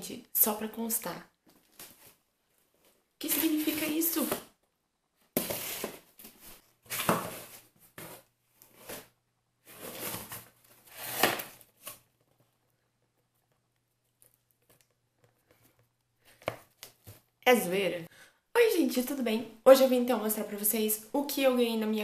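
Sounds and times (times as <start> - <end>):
cardboard boxes rustling and scraping: 5.3 - 12.1.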